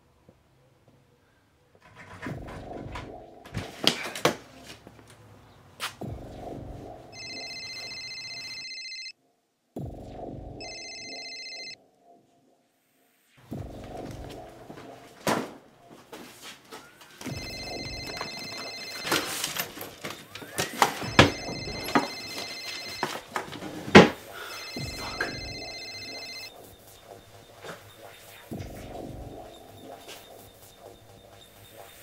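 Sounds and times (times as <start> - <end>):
telephone ringing: 7.2 - 9.2, 10.6 - 11.8, 17.2 - 27.3.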